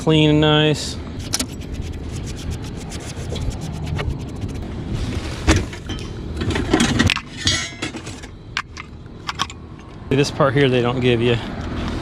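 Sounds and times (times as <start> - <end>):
brush scratching metal cabinet: 1.2 - 4.6.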